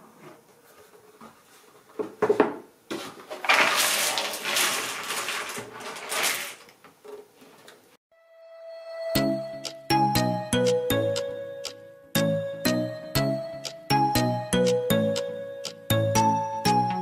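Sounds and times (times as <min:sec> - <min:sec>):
puzzle pieces spilling onto table: 0:03.3 - 0:06.6
music: 0:08.1 - 0:17.0.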